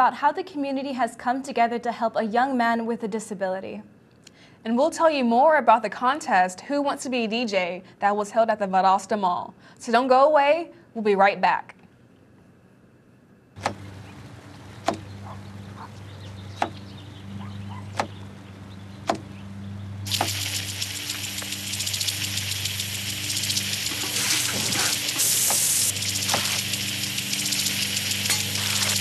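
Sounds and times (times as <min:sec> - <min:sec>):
low steady hum: 0:11.9 - 0:29.0
knife chopping on wooden board: 0:13.6 - 0:13.8, 0:14.8 - 0:15.1, 0:16.6 - 0:16.8, 0:17.9 - 0:18.2, 0:19.1 - 0:19.3
spraying water hiss: 0:20.1 - 0:29.0.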